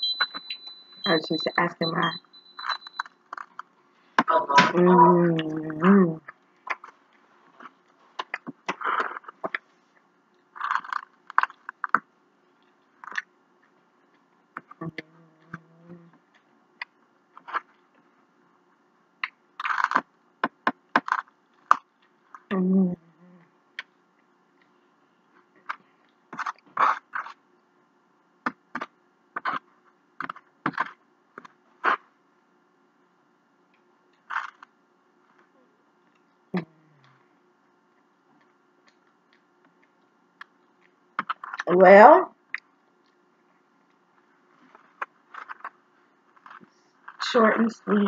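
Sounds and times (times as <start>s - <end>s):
scraping and biting: 10.4s - 12.1s, 19.2s - 22.5s, 44.6s - 47.2s.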